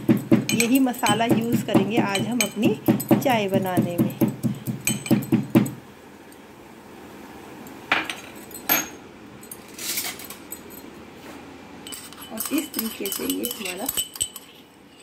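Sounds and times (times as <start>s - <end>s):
metal pestle pounding in mortar: 0.0s - 5.8s
sharp knocks: 0.0s - 5.8s.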